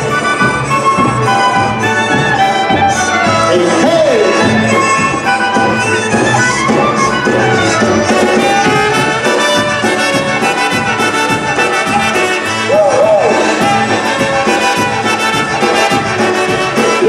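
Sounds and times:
clarinet: 0:00.0 - 0:17.0
concertina: 0:00.0 - 0:17.0
polka band playing: 0:00.0 - 0:17.0
steady drum beat: 0:00.0 - 0:17.0
trumpet: 0:00.0 - 0:17.0.

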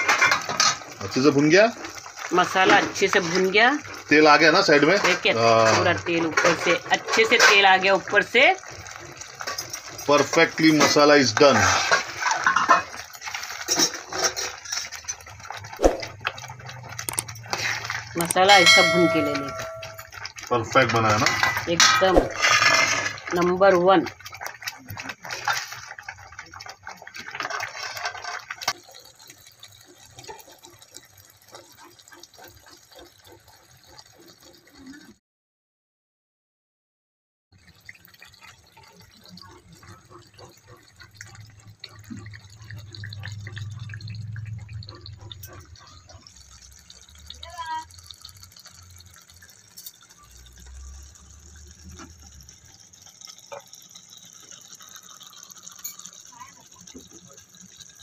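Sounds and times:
gravy sloshing and stirring: 0:00.0 - 0:35.1, 0:37.6 - 0:58.0
gravy bubbling with small plops: 0:00.0 - 0:35.2, 0:37.5 - 0:58.0
bubbles popping: 0:15.0 - 0:20.3, 0:37.6 - 0:58.0.

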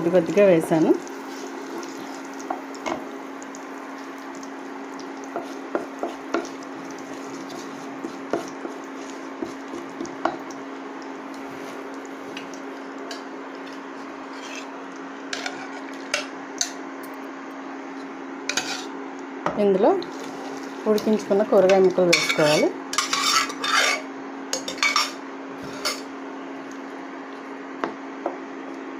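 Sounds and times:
spices sizzling in oil: 0:00.0 - 0:17.0, 0:18.0 - 0:19.0, 0:19.6 - 0:26.2
wooden spatula stirring in wok: 0:05.3 - 0:10.4.

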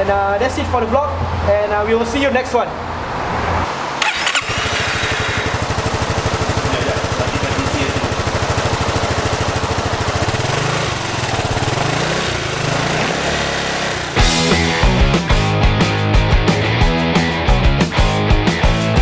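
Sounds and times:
scooter engine idling: 0:04.0 - 0:15.0.

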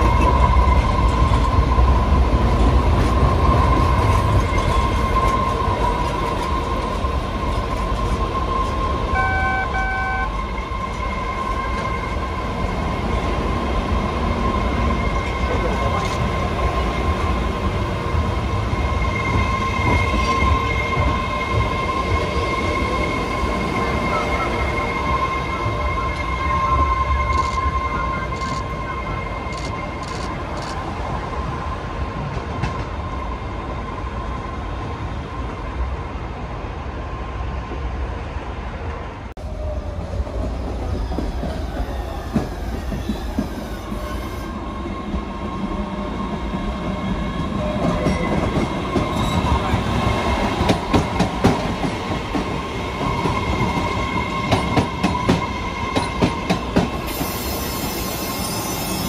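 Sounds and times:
subway train whine and rumble: 0:00.0 - 0:59.0
train wheels squealing: 0:03.3 - 0:12.7, 0:18.7 - 0:30.9, 0:39.6 - 0:51.2, 0:52.9 - 0:59.0.

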